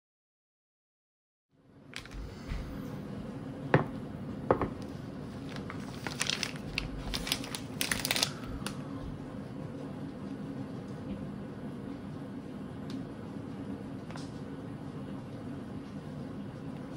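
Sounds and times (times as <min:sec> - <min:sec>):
steady low hum: 0:01.5 - 0:16.9
plastic packet crinkling: 0:05.4 - 0:08.8.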